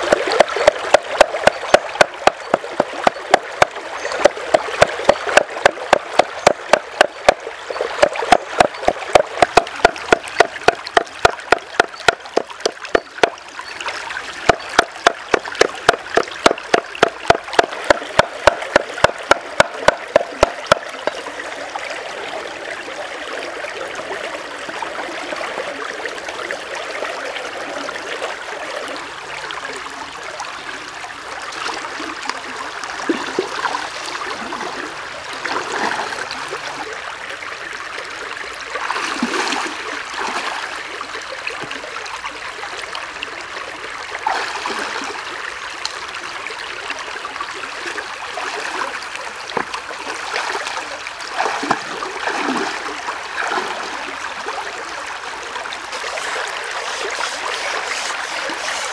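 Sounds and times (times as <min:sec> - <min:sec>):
stream babbling over rocks: 0:00.0 - 0:58.9
water splashes: 0:00.0 - 0:58.9
feet wading through water: 0:48.2 - 0:58.9.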